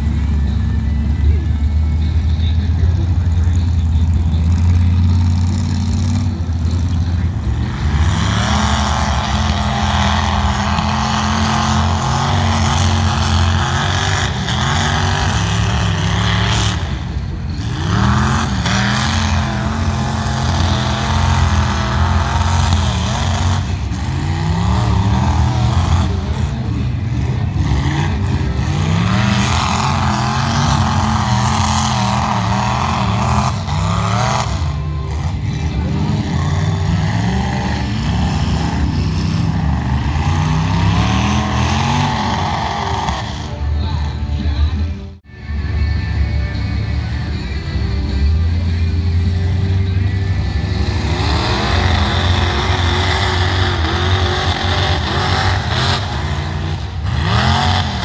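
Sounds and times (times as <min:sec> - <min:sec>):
truck engine revving hard: 0:00.0 - 0:45.2, 0:46.2 - 0:58.0.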